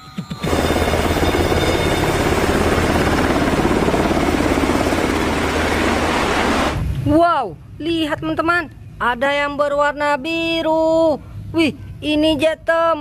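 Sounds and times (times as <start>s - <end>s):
turbine noise: 0.0s - 7.2s
helicopter rotor chop: 0.3s - 6.9s.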